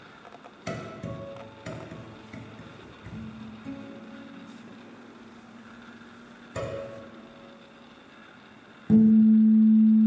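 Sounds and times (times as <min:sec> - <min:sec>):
plucked string notes ringing: 0:06.5 - 0:07.8, 0:08.9 - 0:10.0.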